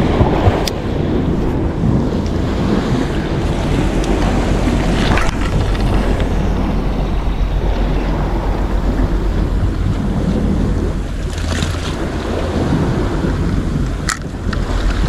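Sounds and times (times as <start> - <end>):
sea surf washing: 0.0 - 15.0
wind buffeting microphone: 0.0 - 15.0.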